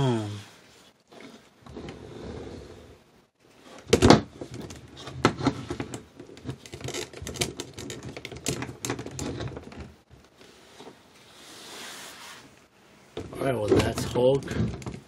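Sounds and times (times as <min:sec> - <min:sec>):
plastic figures clicking and clacking: 0:06.4 - 0:09.9.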